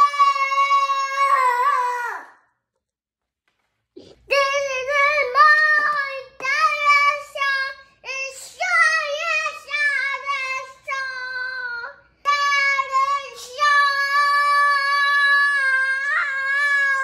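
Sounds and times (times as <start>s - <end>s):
young boy singing: 4.2s - 17.0s.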